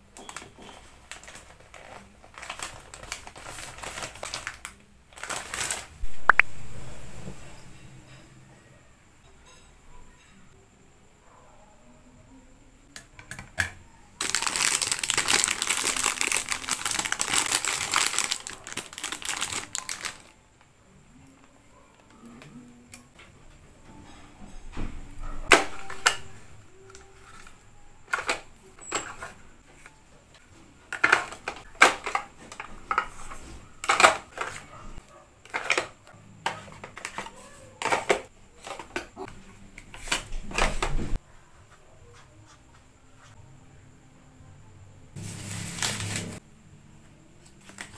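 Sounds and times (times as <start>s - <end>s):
plastic packaging crinkling: 0.2s - 7.6s, 14.2s - 20.4s, 25.5s - 27.5s, 45.2s - 46.4s, 47.6s - 47.9s.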